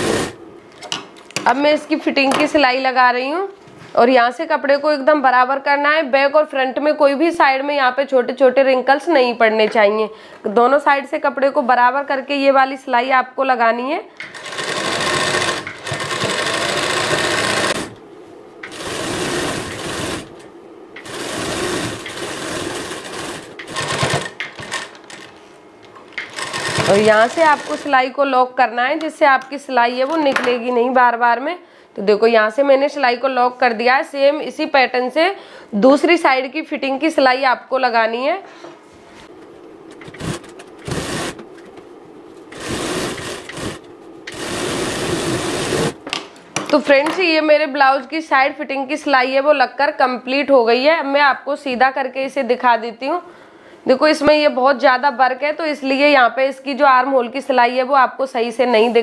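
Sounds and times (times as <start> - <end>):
sewing machine running: 0.0 - 0.4, 14.3 - 18.0, 18.6 - 20.4, 21.0 - 25.2, 26.2 - 28.0, 40.0 - 41.4, 42.5 - 46.0.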